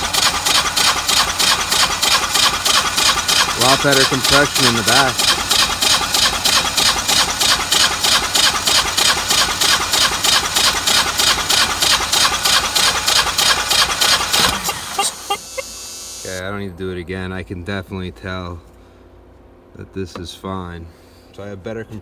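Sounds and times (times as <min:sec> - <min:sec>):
generator engine cranking: 0:00.0 - 0:16.4.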